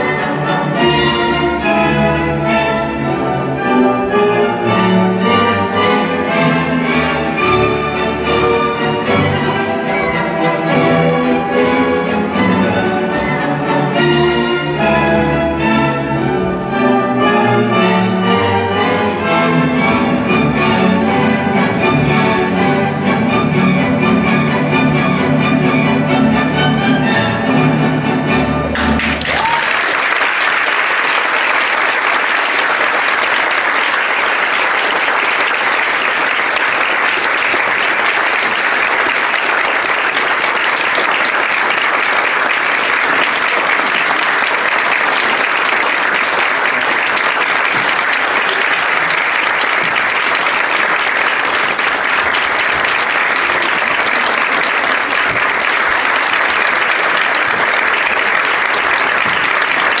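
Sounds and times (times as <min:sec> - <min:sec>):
audience applauding: 0:28.7 - 1:00.0.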